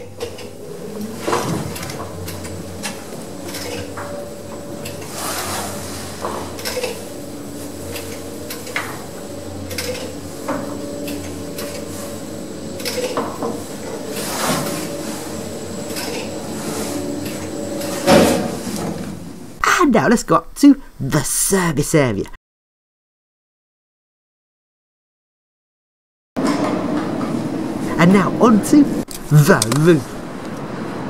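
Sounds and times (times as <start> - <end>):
lift machine hum: 0.0 - 19.6.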